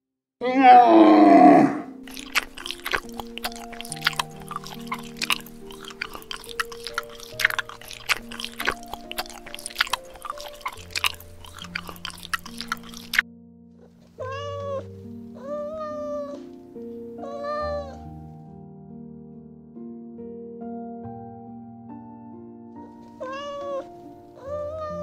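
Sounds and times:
cat meowing: 0.4s - 2.0s, 14.2s - 16.4s, 17.2s - 18.0s, 23.2s - 25.0s
soft background music: 0.4s - 25.0s
chewing crisp lettuce: 0.9s - 13.2s.

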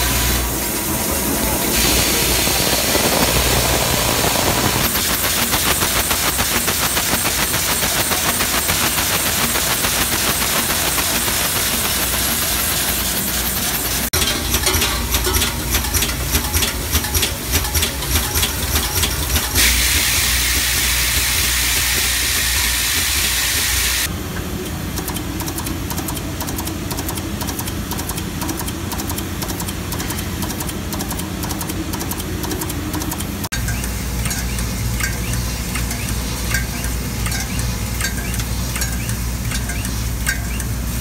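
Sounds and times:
loud steady hiss: 0.0s - 14.1s, 19.5s - 24.1s
machine clattering: 1.1s - 41.0s
machine fine rapid ticking: 1.9s - 40.8s.

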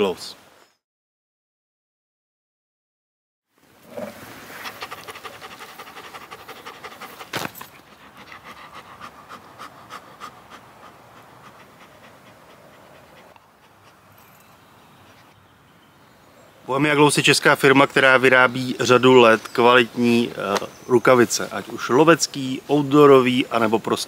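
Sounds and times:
dog panting fast: 4.6s - 14.2s.

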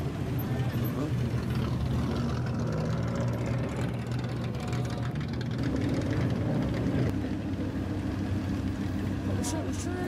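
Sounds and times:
car engine idling: 0.0s - 10.0s.

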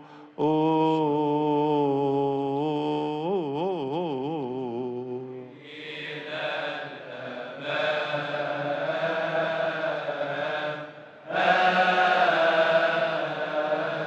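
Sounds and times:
man chanting solo: 0.0s - 5.6s
group of voices singing: 0.0s - 14.0s.

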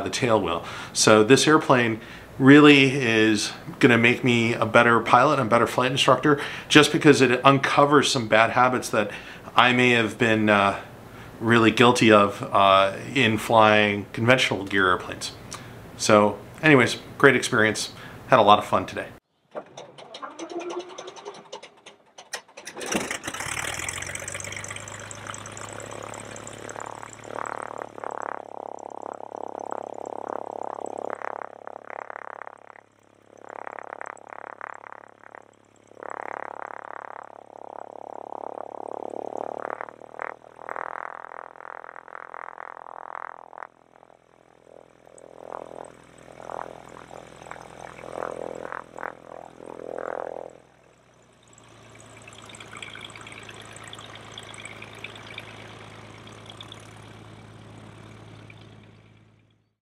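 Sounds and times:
aircraft piston engine idling: 0.4s - 1.1s, 19.8s - 31.0s, 43.7s - 49.8s, 50.5s - 59.6s.

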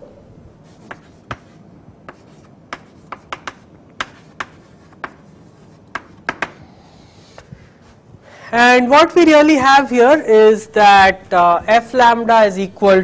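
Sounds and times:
chalk tapping and scraping on blackboard: 0.6s - 6.6s.

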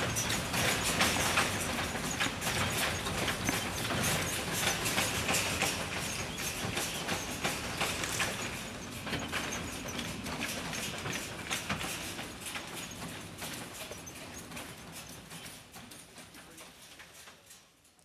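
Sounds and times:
cart wheels rattling: 0.0s - 17.8s.

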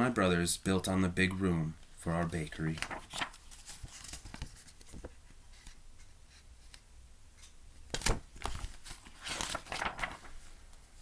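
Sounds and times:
book pages rustling: 2.4s - 6.8s, 7.9s - 10.5s
page turning swish: 2.7s - 5.1s, 8.0s - 10.4s.

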